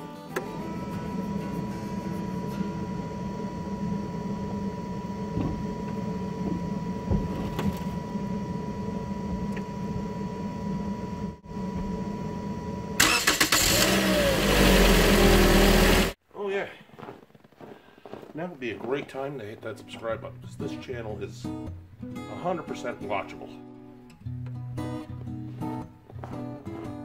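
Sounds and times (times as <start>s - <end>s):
steady high tone: 0.4s - 16.1s
car engine idling: 0.4s - 16.2s
loud burst of noise: 12.8s - 16.2s.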